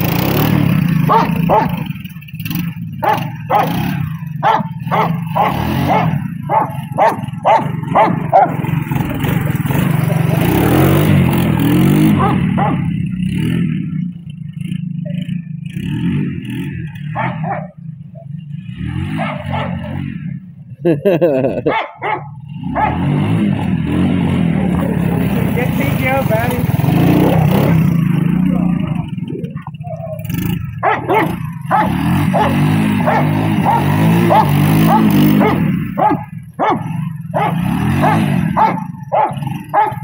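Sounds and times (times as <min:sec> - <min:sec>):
three-wheeler engine running: 0:00.0 - 0:40.0
dog barking: 0:01.1 - 0:01.9, 0:03.0 - 0:03.8, 0:04.4 - 0:08.6, 0:12.1 - 0:12.9, 0:17.2 - 0:18.4, 0:19.2 - 0:19.9, 0:21.6 - 0:23.1, 0:29.5 - 0:40.0.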